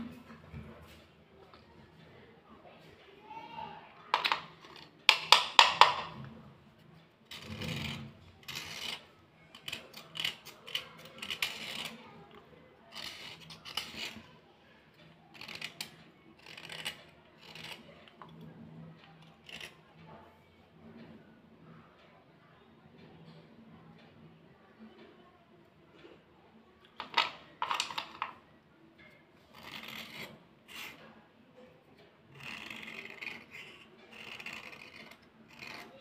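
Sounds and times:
pencils scratching: 4.1s - 6.4s, 7.3s - 14.4s, 15.3s - 18.5s, 19.2s - 19.9s, 27.0s - 28.4s, 29.1s - 31.2s, 32.3s - 36.0s.

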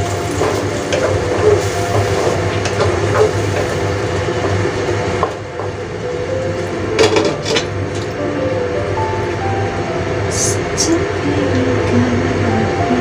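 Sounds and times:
squid sizzling in a wok: 0.0s - 5.6s.

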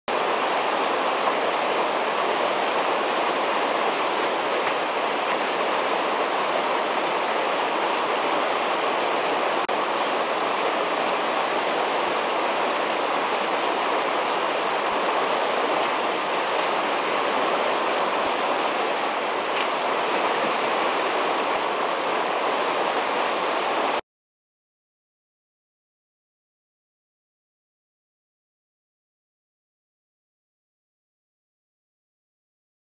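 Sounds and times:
whitewater rushing: 0.1s - 24.0s.

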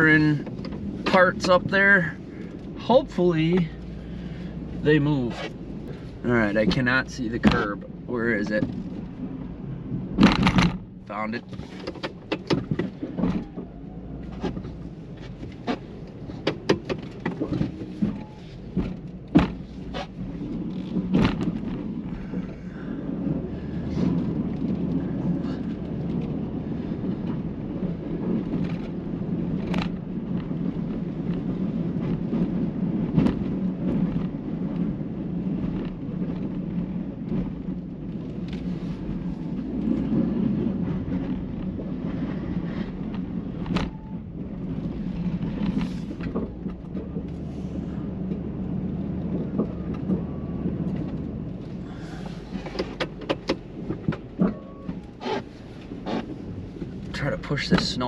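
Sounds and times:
snow plow knocks and scrapes: 0.0s - 9.2s, 10.1s - 58.0s.

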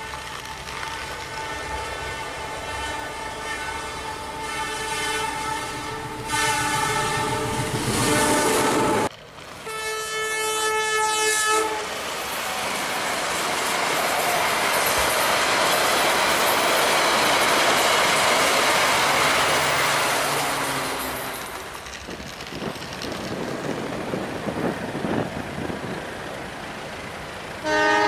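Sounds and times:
electronic toy train horn: 1.4s - 9.1s, 9.7s - 11.9s, 27.6s - 28.0s.

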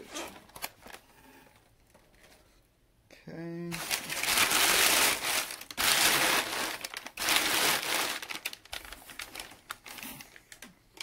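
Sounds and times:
packing paper rustling and crinkling: 0.3s - 1.1s, 3.7s - 10.7s.

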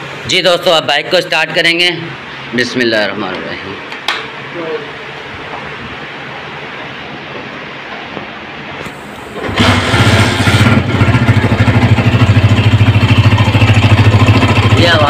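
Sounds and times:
abnormal engine rattle: 9.4s - 15.0s
motorcycle engine running: 9.4s - 15.0s.

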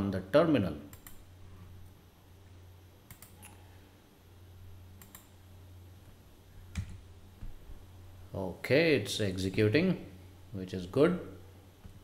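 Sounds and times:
faint low hum: 0.0s - 12.0s
keyboard and mouse clicks: 0.9s - 1.2s, 3.1s - 3.6s, 5.0s - 5.4s, 6.7s - 7.0s.

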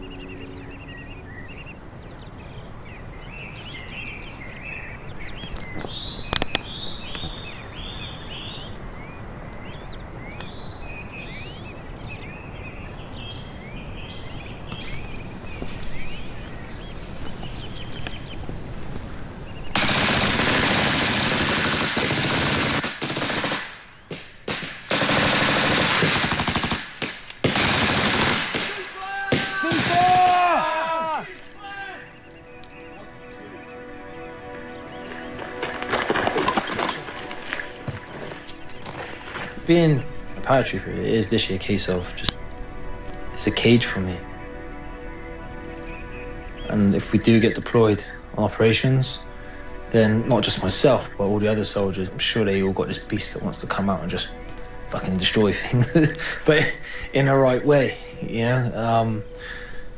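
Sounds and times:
birds chirping and singing: 0.0s - 20.8s, 23.1s - 59.9s
automatic gunfire bursts: 19.8s - 23.8s, 24.5s - 28.8s.

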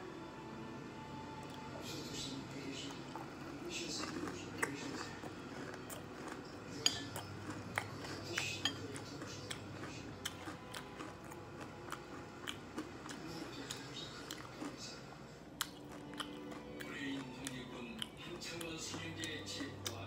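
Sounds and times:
chopsticks clinking on ceramic plate: 6.2s - 9.3s.

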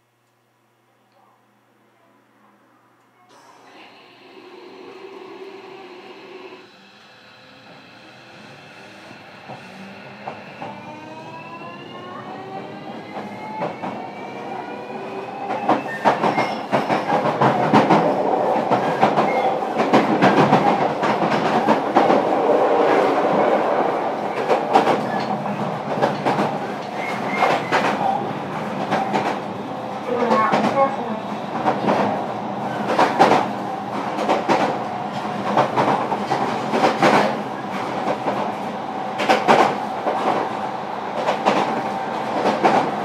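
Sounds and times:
train motor whine rising: 3.6s - 15.6s
train running noise: 3.6s - 43.0s.

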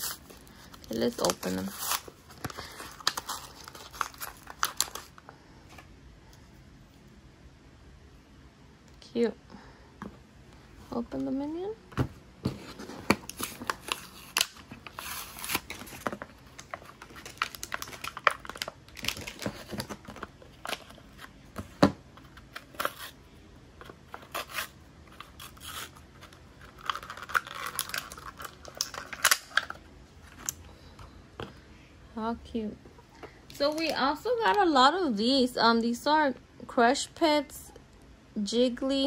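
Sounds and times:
packaging being torn and crinkled: 0.0s - 5.2s, 13.1s - 21.3s, 24.1s - 30.6s.

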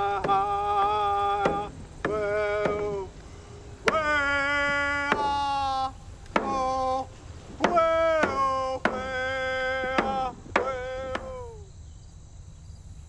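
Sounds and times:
frame drum strikes: 0.0s - 11.6s
person singing long notes: 0.0s - 11.7s.

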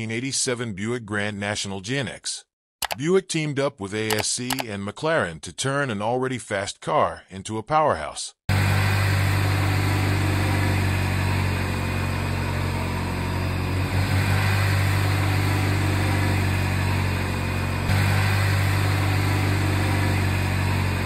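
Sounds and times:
car engine idling: 8.5s - 21.0s.

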